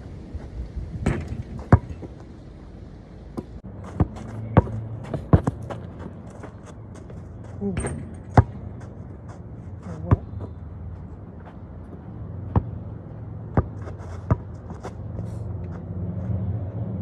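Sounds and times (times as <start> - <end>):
basketball bouncing: 1.0 - 2.1, 3.4 - 6.3, 7.0 - 9.0, 12.4 - 12.9, 13.5 - 14.6.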